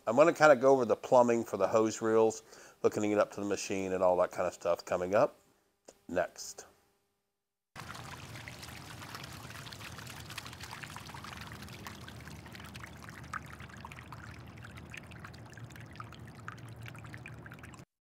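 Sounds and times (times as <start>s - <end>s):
water pouring and splashing: 7.8s - 17.9s.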